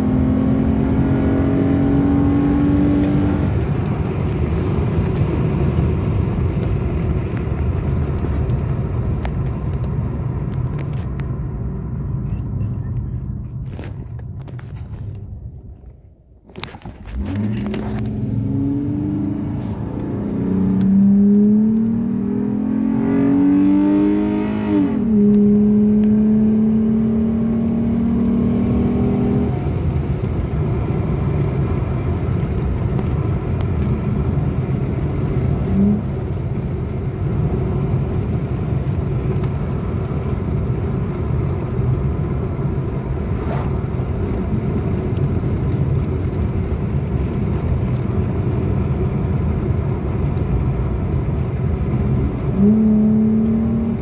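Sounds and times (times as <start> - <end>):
car engine revving: 0.0 - 7.2, 17.1 - 38.1, 51.3 - 54.0.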